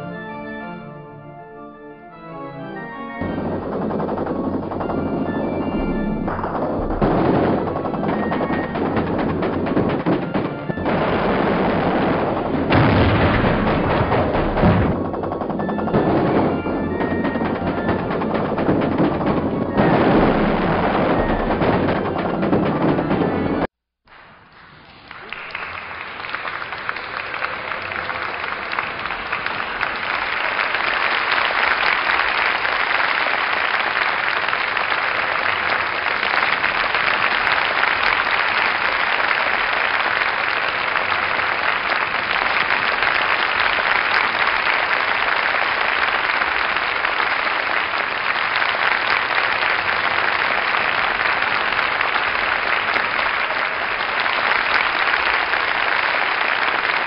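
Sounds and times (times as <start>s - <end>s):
dense steady patter: 3.2s - 23.7s.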